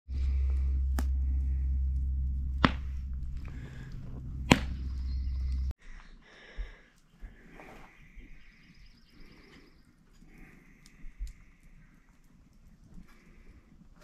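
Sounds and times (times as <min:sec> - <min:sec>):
deep rumble: 0:00.1 - 0:05.8
faint outdoor background: 0:00.1 - 0:14.0
whip-like cracks: 0:04.5 - 0:04.8.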